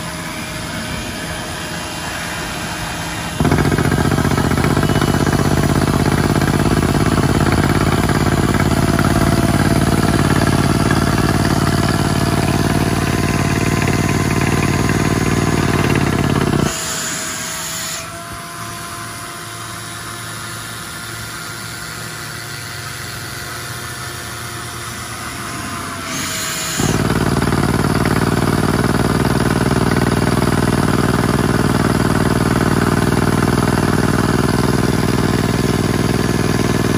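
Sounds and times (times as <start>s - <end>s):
rock drill hammering: 3.0s - 17.0s, 26.1s - 36.9s.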